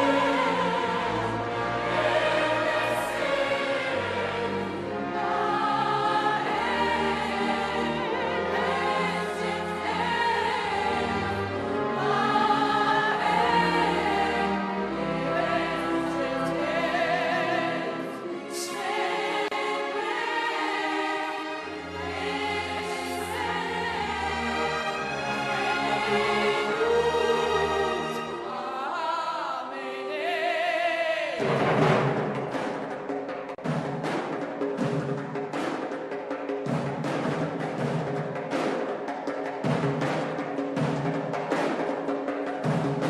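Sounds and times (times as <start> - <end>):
orchestra playing: 0.0 - 30.4, 31.4 - 33.3
soprano singing: 0.0 - 31.6
choir singing: 0.0 - 33.0.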